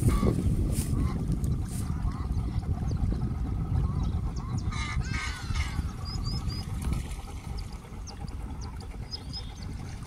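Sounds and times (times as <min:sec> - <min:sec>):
bird calls: 0:00.0 - 0:10.0
water lapping: 0:00.0 - 0:10.0
small birds chirping: 0:01.4 - 0:06.8, 0:07.4 - 0:09.9.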